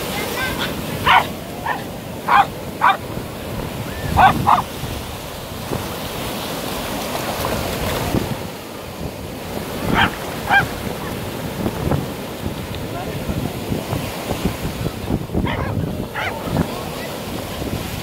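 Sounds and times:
surf washing on shore: 0:00.0 - 0:18.0
wind buffeting microphone: 0:00.0 - 0:18.0
small dog barking: 0:01.0 - 0:03.1, 0:04.0 - 0:04.7, 0:09.9 - 0:11.2, 0:15.4 - 0:16.6.

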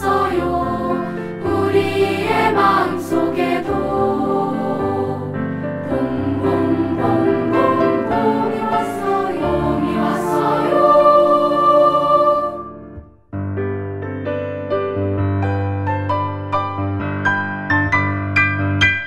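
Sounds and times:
children's choir singing: 0:00.0 - 0:12.8
piano accompaniment: 0:00.0 - 0:19.0.

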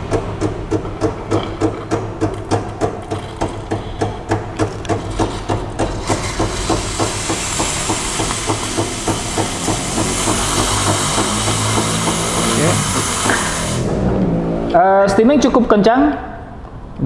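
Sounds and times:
espresso machine rhythmic knocking: 0:00.0 - 0:13.8
steam hissing from wand: 0:06.0 - 0:13.9.

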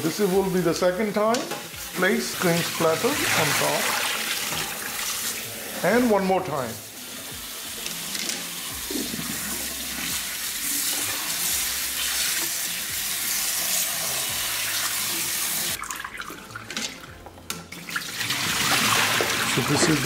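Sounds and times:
tap water splashing into bowl: 0:15.8 - 0:19.8.

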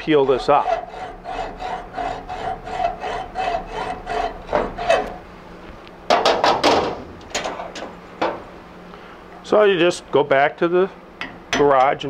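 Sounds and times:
hacksaw cutting metal pipe: 0:00.0 - 0:05.2
loud sharp metal knocks: 0:06.1 - 0:08.4.

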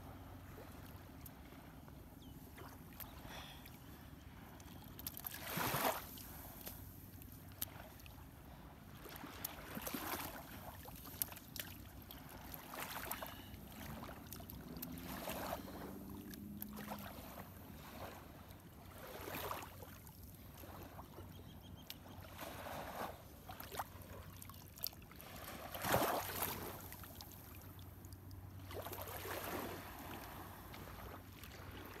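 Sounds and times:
small waves lapping on sand: 0:02.4 - 0:21.2, 0:21.8 - 0:32.0
water sloshing and dripping: 0:04.6 - 0:08.2, 0:09.0 - 0:18.0.

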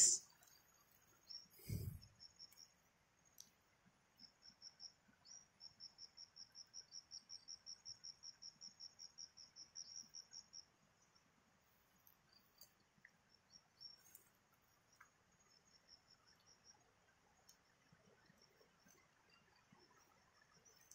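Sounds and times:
insect chirping: 0:00.0 - 0:03.4, 0:04.2 - 0:11.3, 0:11.9 - 0:20.9.

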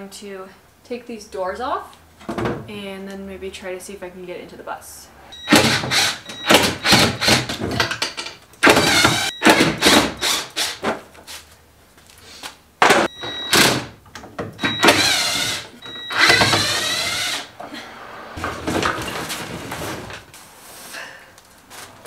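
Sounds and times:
wooden doors knocking and clattering: 0:02.2 - 0:02.7, 0:05.5 - 0:10.2, 0:12.8 - 0:17.2, 0:18.4 - 0:20.3
cordless drill whine: 0:14.6 - 0:17.5.

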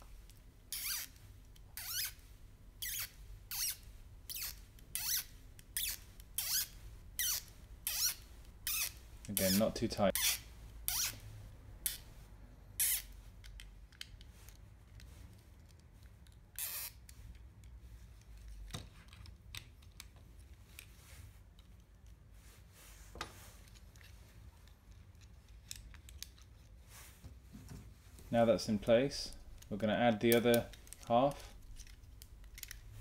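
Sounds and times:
plastic parts clicking: 0:23.6 - 0:26.7, 0:29.5 - 0:32.9.

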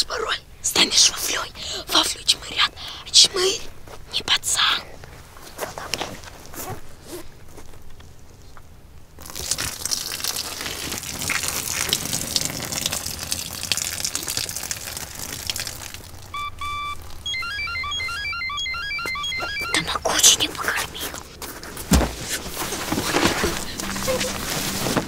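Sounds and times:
electronic beeps playing tune: 0:16.3 - 0:20.0, 0:23.6 - 0:25.0.

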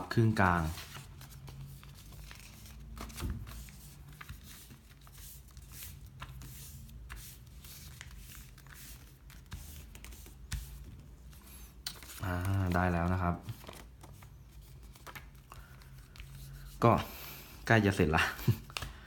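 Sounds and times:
paper rustling and crinkling: 0:00.1 - 0:17.2.

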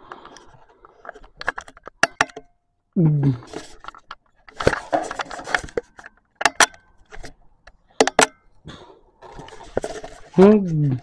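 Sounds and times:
camera handling rustling and knocks: 0:00.1 - 0:02.6, 0:03.5 - 0:08.4, 0:09.2 - 0:11.0.

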